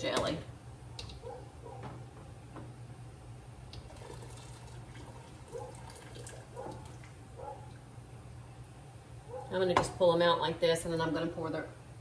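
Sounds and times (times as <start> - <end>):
hot water dripping and trickling: 3.7 - 7.9.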